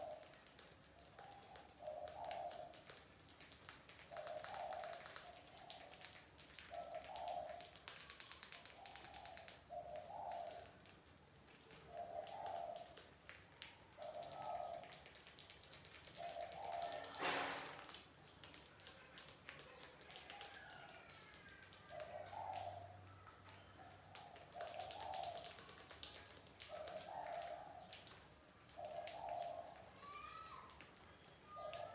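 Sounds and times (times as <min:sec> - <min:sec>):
mice clicking and nibbling: 0:00.0 - 0:31.9.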